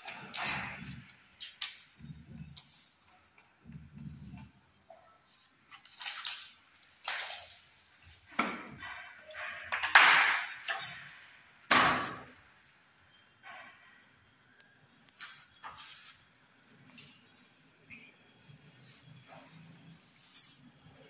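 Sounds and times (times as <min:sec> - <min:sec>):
laminate sheet scraping on tiles: 0:15.2 - 0:17.2.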